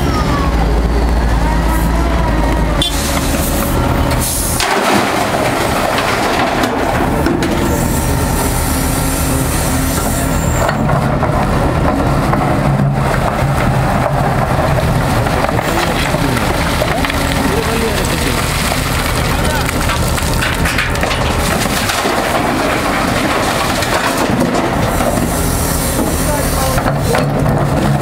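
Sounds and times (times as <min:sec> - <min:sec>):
excavator diesel engine under load: 0:00.0 - 0:28.0
rock rattling into steel truck body: 0:04.6 - 0:07.8, 0:17.6 - 0:25.3.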